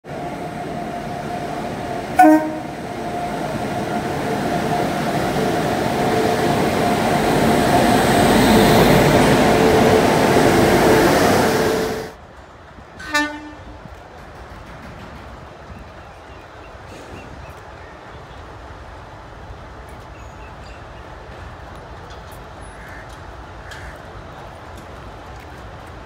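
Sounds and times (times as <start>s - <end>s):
locomotive whine: 0.0s - 12.2s
train rumble: 0.0s - 26.0s
train horn blast: 2.2s - 2.9s, 13.0s - 13.9s.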